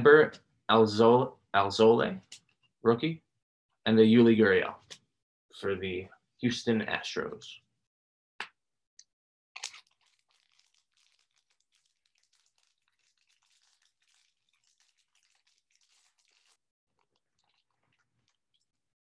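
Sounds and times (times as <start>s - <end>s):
foil crinkling: 9.6s - 16.6s
foil wrapper ripping: 9.6s - 16.6s.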